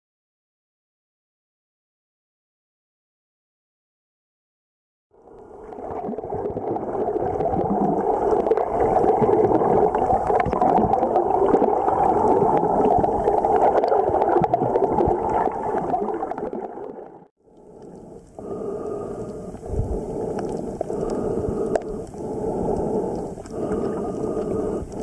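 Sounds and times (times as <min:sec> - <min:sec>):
muffled underwater churning: 0:05.2 - 0:25.0.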